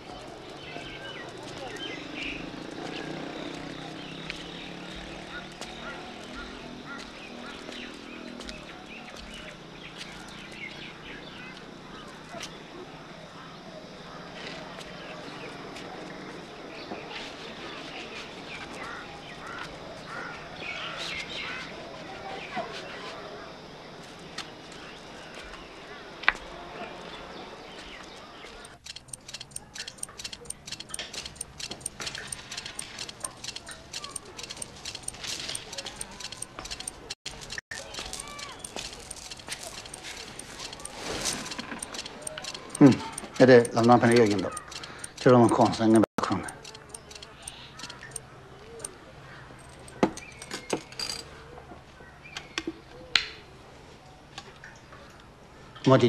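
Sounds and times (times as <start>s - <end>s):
prayer wheel ticking and clicking: 28.5s - 51.3s.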